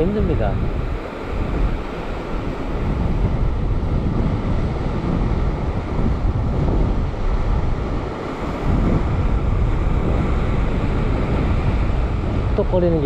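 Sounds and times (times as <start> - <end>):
sea surf washing over rock: 0.0 - 13.0
wind buffeting microphone: 0.0 - 13.0.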